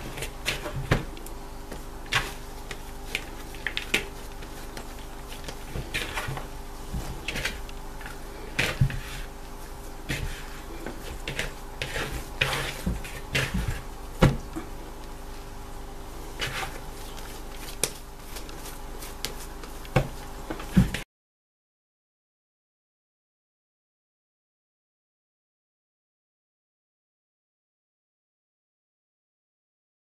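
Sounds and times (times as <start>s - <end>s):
dough slapping and squelching: 0.0s - 14.8s, 16.2s - 21.0s
steady low hum: 0.0s - 21.0s.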